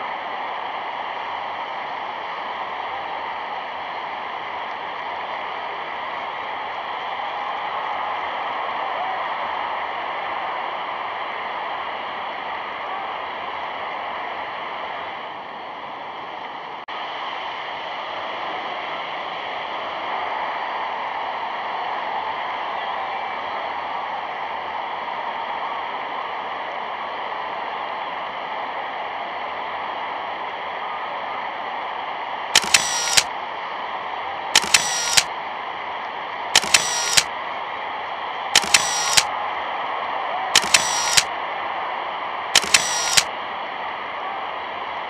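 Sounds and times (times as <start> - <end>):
sharp clicks: 32.6 - 33.3, 34.6 - 35.3, 36.6 - 37.3, 38.6 - 39.3, 40.6 - 41.3, 42.6 - 43.3.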